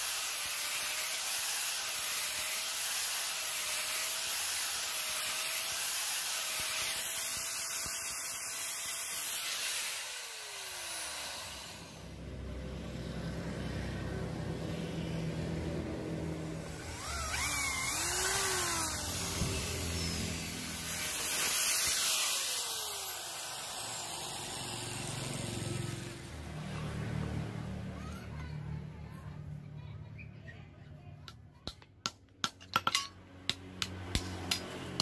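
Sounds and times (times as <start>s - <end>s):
electric drill boring into wood: 0.0s - 12.1s, 16.5s - 26.1s
angle grinder winding down: 0.0s - 26.2s.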